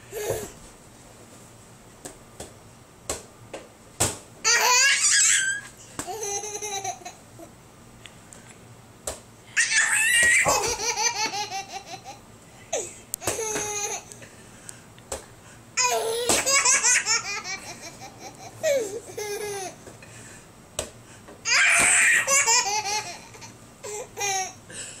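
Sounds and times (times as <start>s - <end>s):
baby laughing: 4.5s - 7.5s, 9.6s - 12.2s, 13.2s - 14.1s, 15.8s - 19.8s, 21.5s - 24.6s.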